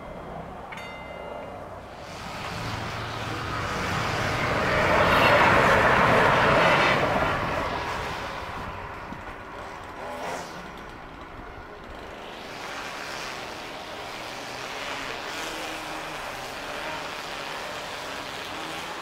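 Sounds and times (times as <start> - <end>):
train passing: 0.0 - 14.2
road noise from cars: 0.0 - 19.0.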